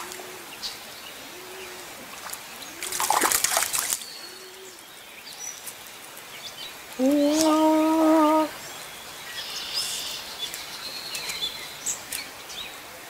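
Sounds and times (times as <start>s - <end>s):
fish splashing at water surface: 2.2s - 4.0s.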